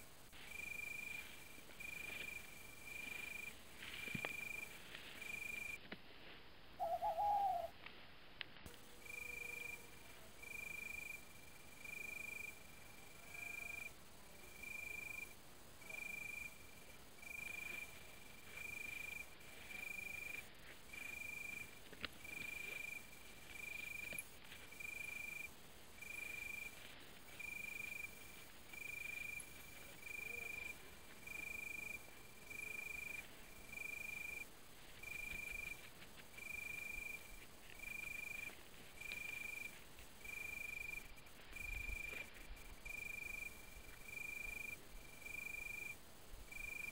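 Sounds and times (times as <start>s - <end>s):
insect chirping: 0.0s - 5.9s, 6.8s - 7.8s, 8.7s - 46.9s
low rustle: 0.0s - 6.8s.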